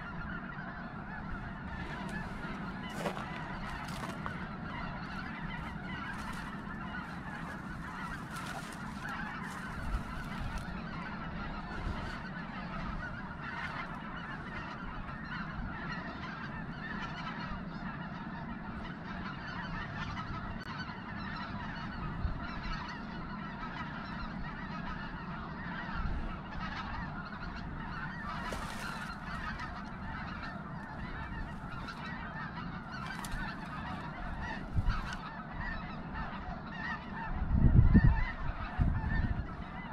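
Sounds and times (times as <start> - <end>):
dry grass rustling: 0.0 - 15.2, 26.8 - 37.0
snow geese honking: 0.0 - 39.9.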